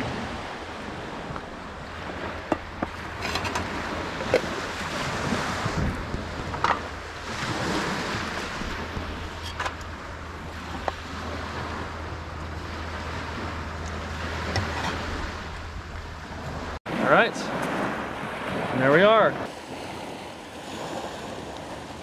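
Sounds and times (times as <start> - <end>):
wind buffeting microphone: 0.0 - 16.8
small waves washing onto sand: 0.0 - 22.0.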